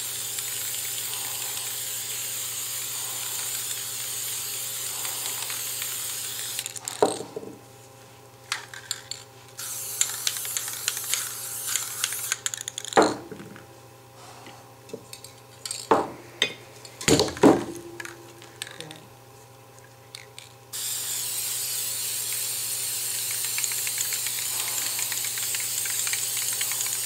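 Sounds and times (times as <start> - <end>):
spray-paint can hissing: 0.0 - 7.2, 9.6 - 13.0, 20.8 - 27.0.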